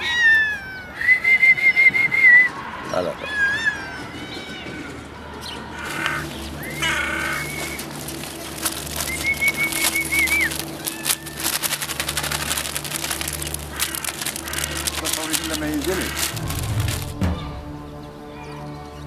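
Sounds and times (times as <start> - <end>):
birds chirping: 0.0 - 19.0
food rattling onto stone: 5.8 - 17.2.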